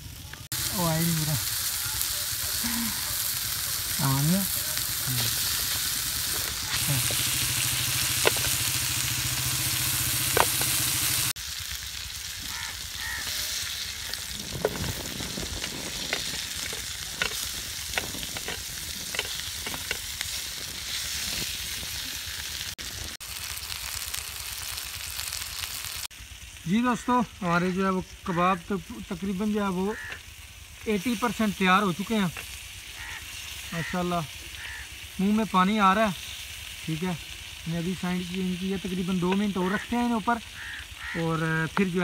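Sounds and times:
meat sizzling in a pan: 0:00.0 - 0:42.0
fat popping and crackling: 0:00.3 - 0:11.4, 0:12.2 - 0:23.2, 0:37.8 - 0:42.0.

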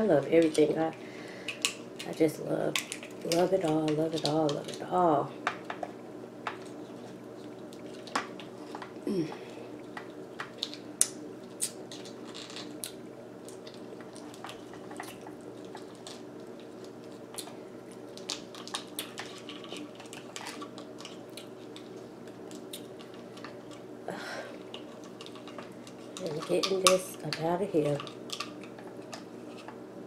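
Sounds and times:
lobster shell cracking: 0:09.8 - 0:23.9, 0:24.6 - 0:29.8.

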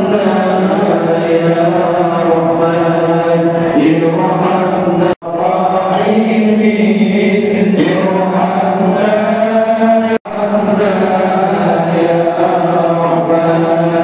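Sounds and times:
men chanting in unison: 0:00.0 - 0:14.0.

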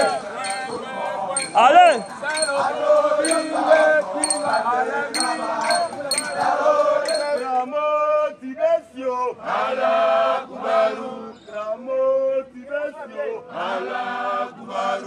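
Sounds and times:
group of voices chanting: 0:00.0 - 0:07.5.

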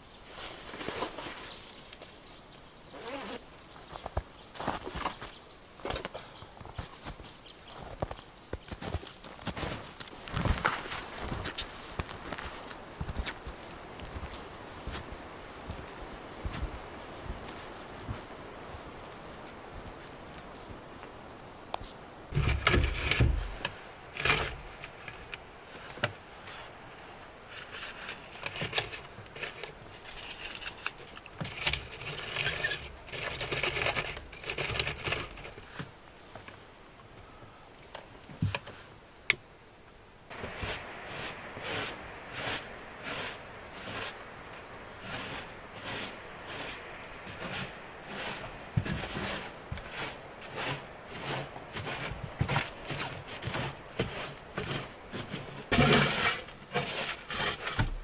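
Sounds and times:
regular scraping strokes: 0:00.2 - 0:05.3, 0:21.8 - 0:35.9, 0:40.3 - 0:58.0.

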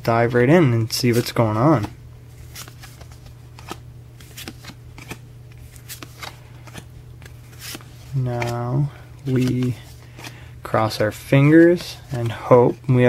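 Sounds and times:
cards flipped by hand: 0:01.0 - 0:08.6, 0:09.2 - 0:10.4.

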